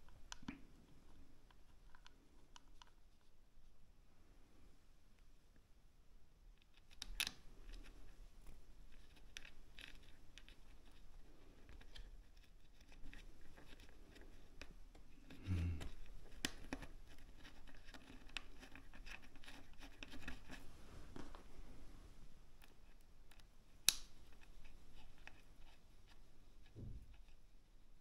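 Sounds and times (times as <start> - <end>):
light clicks scrapes and rustles: 6.6 - 21.8.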